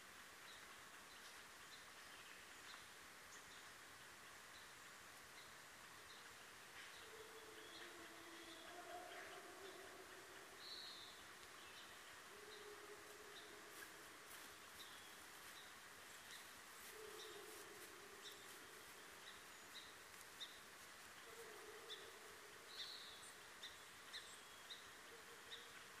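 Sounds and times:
steady hiss: 0:00.0 - 0:26.0
bird chirping: 0:05.4 - 0:20.6, 0:21.2 - 0:26.0.

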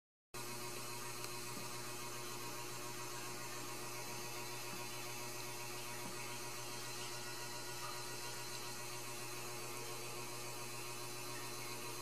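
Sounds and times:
steady low hum: 0:00.4 - 0:12.0.

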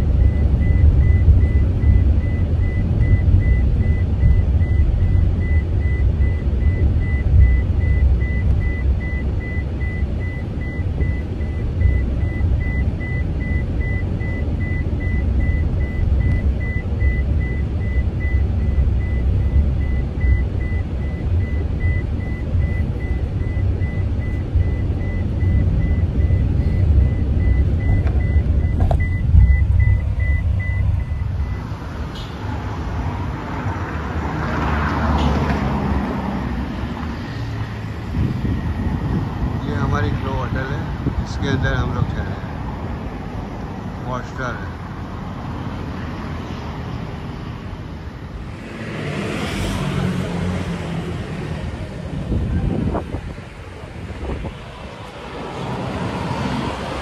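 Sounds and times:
vehicle warning chime beeping: 0:00.0 - 0:32.4
engine and road rumble: 0:00.0 - 0:57.0.

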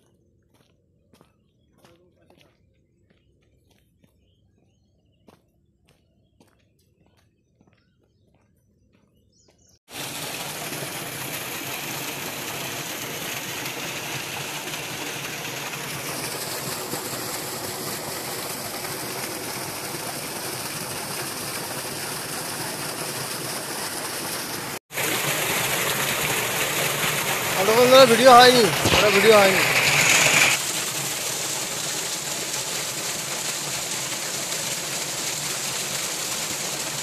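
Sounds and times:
water gushing from a pipe: 0:09.9 - 0:37.0.

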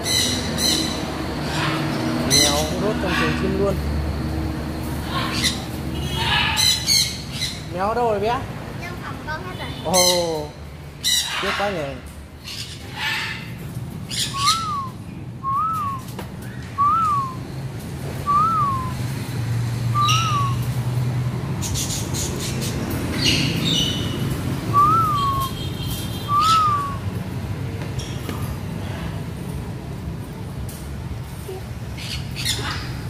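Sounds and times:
parrots squawking: 0:00.0 - 0:03.8, 0:04.8 - 0:07.8, 0:09.7 - 0:15.0, 0:20.0 - 0:20.7, 0:21.6 - 0:25.6, 0:26.2 - 0:27.1, 0:32.0 - 0:33.0
parrot whistling: 0:14.1 - 0:16.0, 0:16.8 - 0:17.4, 0:18.3 - 0:19.0, 0:19.9 - 0:20.6, 0:24.7 - 0:25.6, 0:26.2 - 0:27.0.

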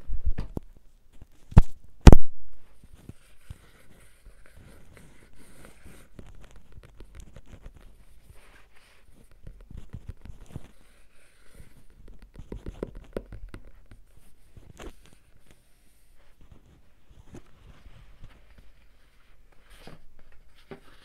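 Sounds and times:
scratchy rubbing: 0:02.8 - 0:21.0.

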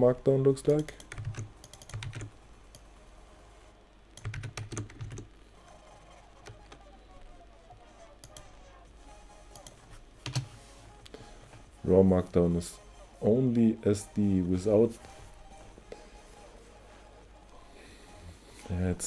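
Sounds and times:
keyboard typing: 0:00.7 - 0:02.9, 0:04.2 - 0:06.9, 0:08.0 - 0:08.6, 0:09.4 - 0:10.6.

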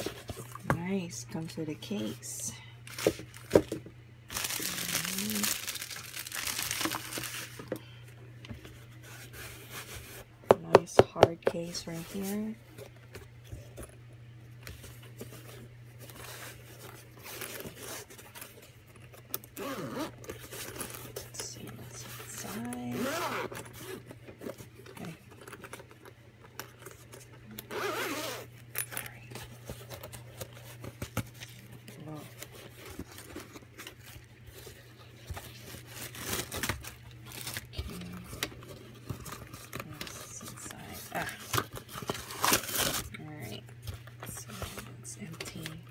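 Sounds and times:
steady low hum: 0:00.0 - 0:45.9
plastic packaging crinkling: 0:02.8 - 0:08.0, 0:28.4 - 0:45.9
zipper rasping open: 0:19.5 - 0:20.4, 0:22.4 - 0:24.1, 0:27.6 - 0:29.0.

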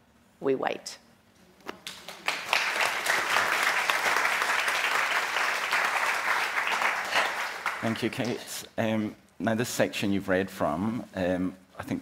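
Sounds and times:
audience applauding: 0:01.8 - 0:08.4.

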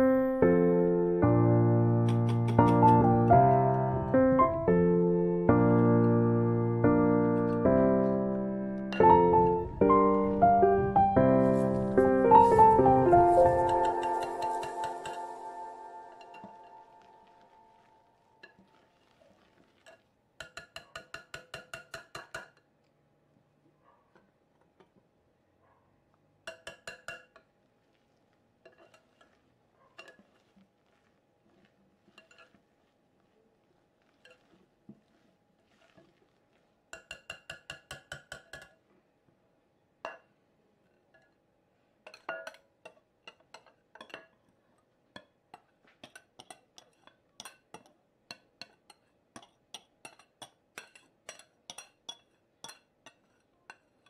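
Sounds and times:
glass bowl ringing: 0:13.6 - 0:17.1
whisk clinking against glass bowl: 0:36.9 - 0:38.7.

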